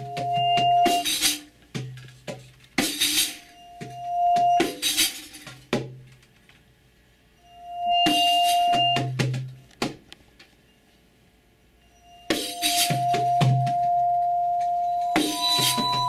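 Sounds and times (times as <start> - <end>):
bowed vibraphone tone: 0.0 - 1.1, 11.9 - 16.0
shaken percussion rattles: 0.0 - 6.3, 12.3 - 16.0.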